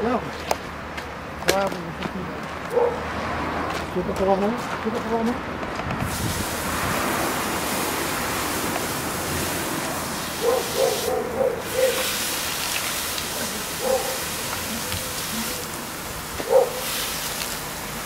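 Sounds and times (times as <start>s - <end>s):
water hissing into steam: 6.0s - 18.0s.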